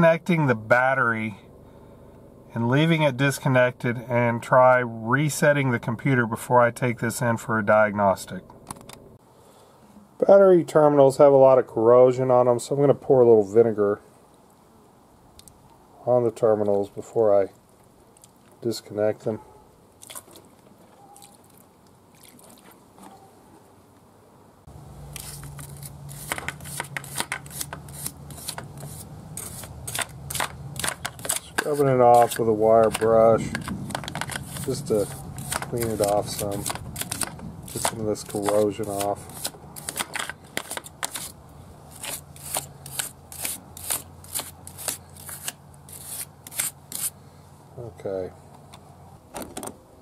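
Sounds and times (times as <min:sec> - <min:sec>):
steady low hum: 0:00.0 - 0:10.2
wire brush scraping metal: 0:25.1 - 0:47.2.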